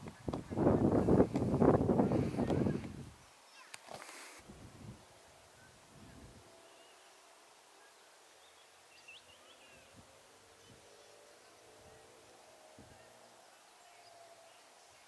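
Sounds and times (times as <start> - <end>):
faint bird chirps: 5.3 - 15.0.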